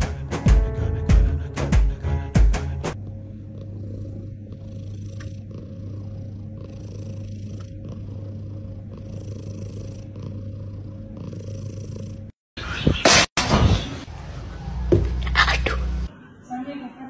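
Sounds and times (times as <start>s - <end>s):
cat purring: 2.9s - 12.4s.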